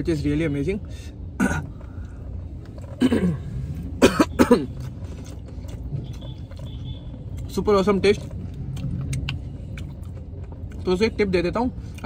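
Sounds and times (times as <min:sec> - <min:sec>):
car cabin rumble: 0:01.4 - 0:10.9
cough-like bursts: 0:03.0 - 0:04.9.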